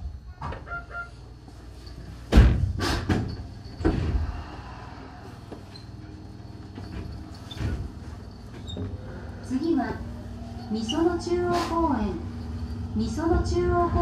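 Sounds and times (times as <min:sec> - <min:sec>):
train doors closing with thuds: 0:02.1 - 0:04.6, 0:06.8 - 0:09.9.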